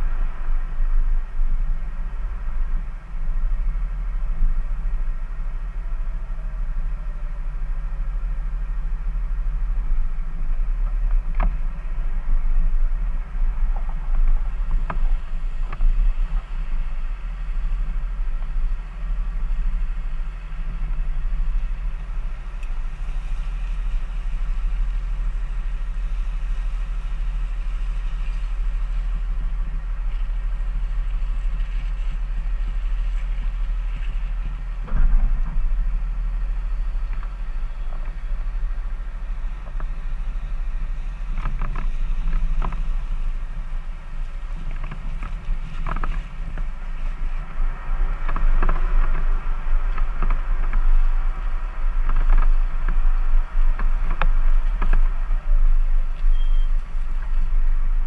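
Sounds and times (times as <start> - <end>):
deep engine rumble: 0.0 - 58.0
knocks and creaks: 10.7 - 18.8, 29.5 - 58.0.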